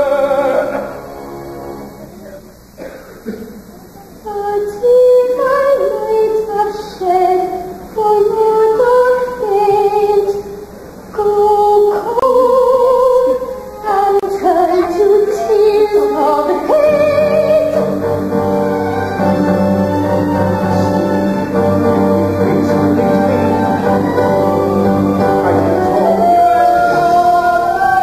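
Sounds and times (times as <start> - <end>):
woman singing with vibrato: 4.2 - 28.0
instrumental accompaniment: 13.6 - 28.0.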